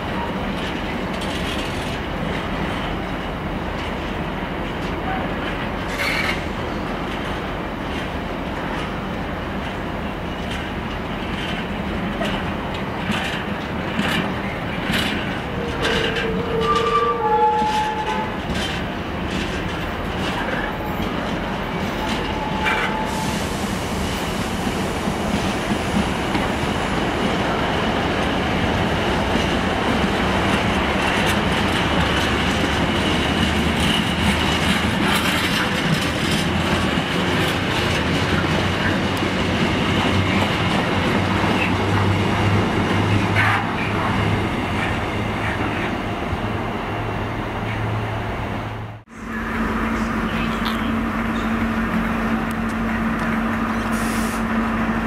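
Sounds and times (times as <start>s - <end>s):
freight train rolling: 0.0s - 55.0s
wheels clicking over rail joints: 0.2s - 23.0s, 27.2s - 45.9s
wheel squeals: 15.5s - 18.4s.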